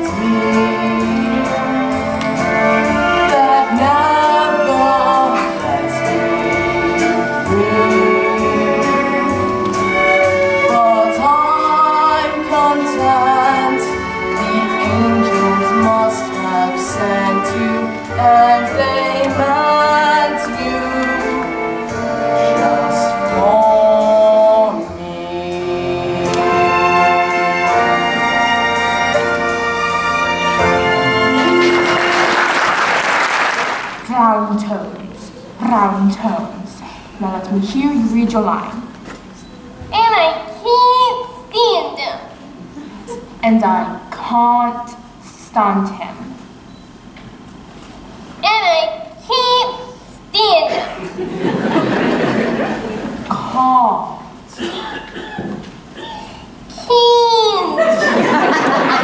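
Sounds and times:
orchestral accompaniment: 0.0s - 33.3s
voice singing a slow ballad: 3.0s - 28.3s.

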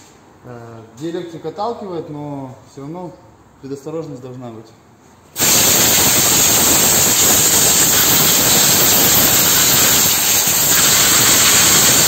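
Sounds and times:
compressed air blow gun hissing: 5.4s - 12.0s.

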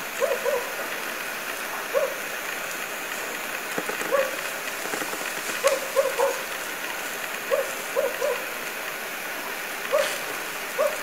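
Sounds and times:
steady background hiss: 0.0s - 11.0s
pheasant clucking: 3.7s - 6.4s.

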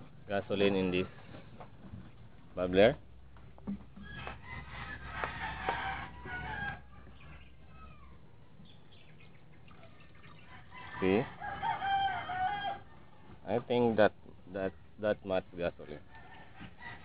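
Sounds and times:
chickens clucking: 3.4s - 13.4s.

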